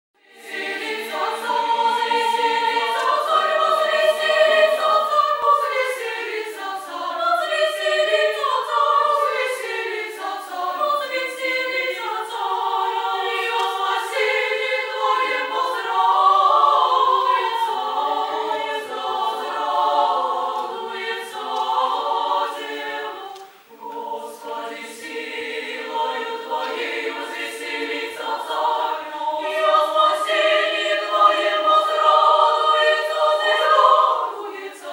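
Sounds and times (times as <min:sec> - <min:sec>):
female choir singing a cappella: 0:00.2 - 0:34.9.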